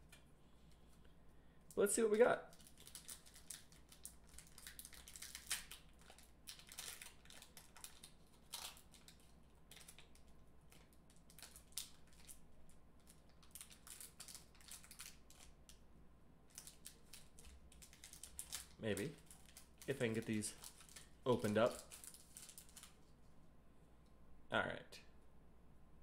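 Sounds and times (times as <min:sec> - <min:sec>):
foil wrapper crinkling: 0:02.4 - 0:15.8, 0:16.5 - 0:23.1.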